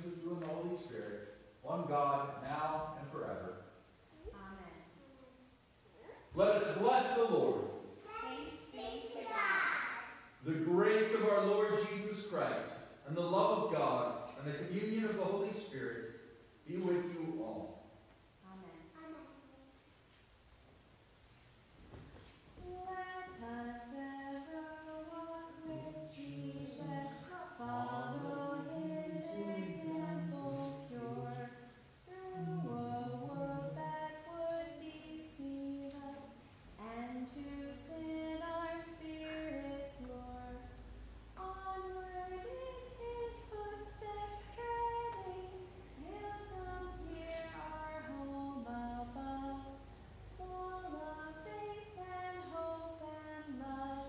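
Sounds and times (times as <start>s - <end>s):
voices singing a hymn: 22.6s - 54.0s.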